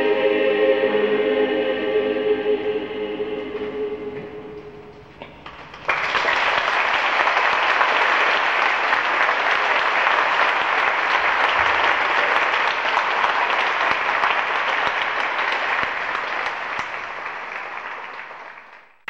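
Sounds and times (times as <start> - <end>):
choir final chord: 0.0 - 5.1
audience applause: 5.4 - 19.0.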